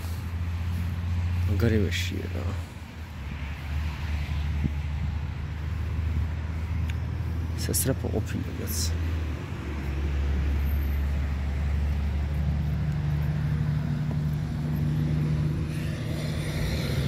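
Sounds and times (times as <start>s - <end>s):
engine idling hum: 4.6s - 17.0s.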